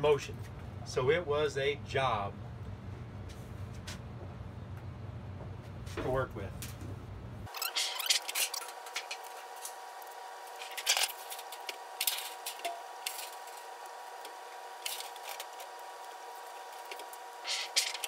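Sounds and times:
steady hum: 0.0 - 18.0
sheet metal scraping and clicking: 16.8 - 18.0.

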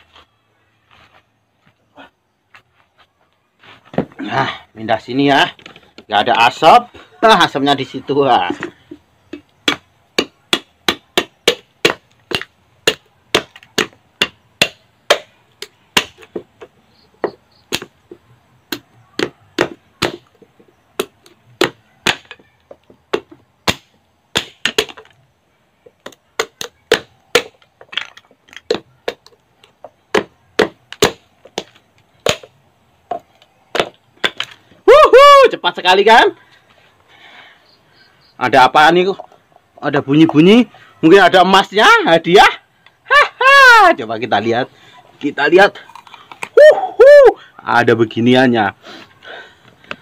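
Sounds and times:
machete chopping coconut shell: 9.3 - 18.0, 18.7 - 20.4, 21.0 - 22.4, 23.1 - 25.1, 26.0 - 29.4, 30.1 - 32.5, 33.1 - 34.6.

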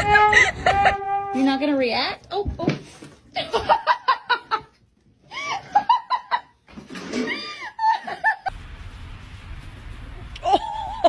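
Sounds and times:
person laughing and squealing: 0.0 - 1.1, 10.4 - 11.0.

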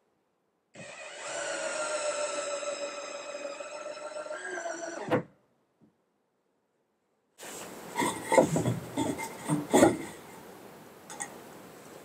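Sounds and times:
wooden boards knocking and rubbing: 8.0 - 10.2.

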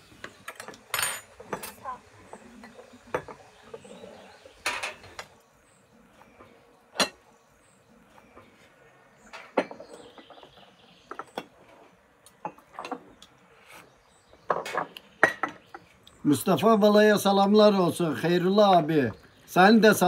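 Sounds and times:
tableware clinking: 0.4 - 1.9, 2.6 - 3.9, 4.6 - 5.2, 6.9 - 7.2, 9.3 - 10.5, 12.3 - 13.1, 14.5 - 15.8.

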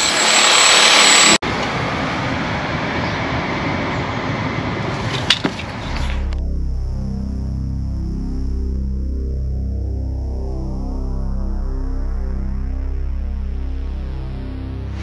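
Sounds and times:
power tool drilling into mortar: 0.0 - 1.4
low musical hum: 5.8 - 15.0.

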